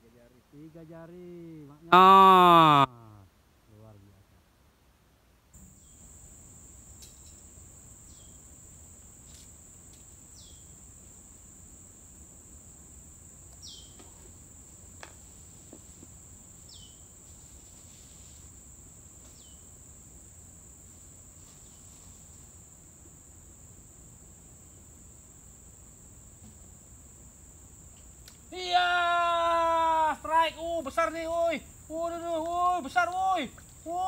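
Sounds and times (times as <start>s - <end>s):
short falling call: 1.9s - 2.9s
high-pitched insect trill: 5.6s - 34.0s.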